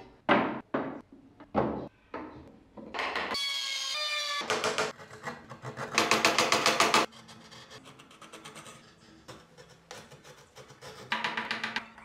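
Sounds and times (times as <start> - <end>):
carving gouge scraping wood: 4.9 - 6.2, 7.0 - 11.2.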